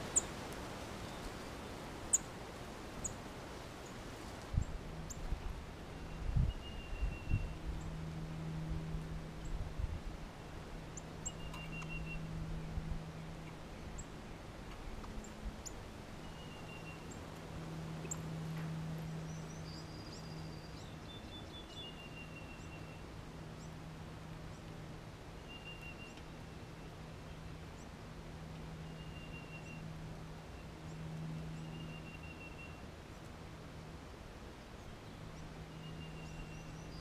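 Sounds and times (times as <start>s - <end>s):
songbird trills: 0.0s - 1.4s, 2.1s - 2.4s, 5.9s - 8.1s, 10.9s - 23.8s, 25.3s - 27.9s, 28.7s - 33.3s, 34.8s - 37.0s
steady low hum: 0.0s - 37.0s.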